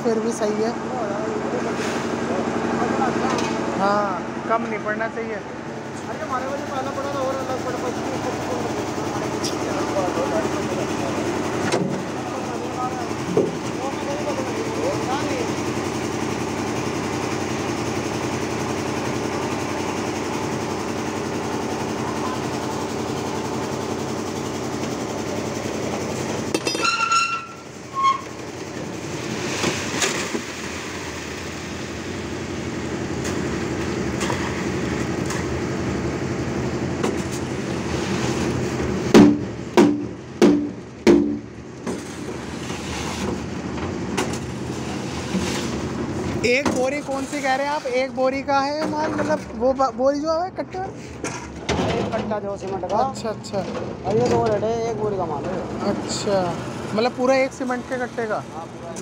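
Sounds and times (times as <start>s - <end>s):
concrete mixer running: 0.0s - 59.0s
wet concrete rushing out: 28.9s - 35.6s, 37.2s - 39.0s, 42.0s - 43.5s, 44.3s - 48.0s
loud knocks: 39.1s - 41.5s.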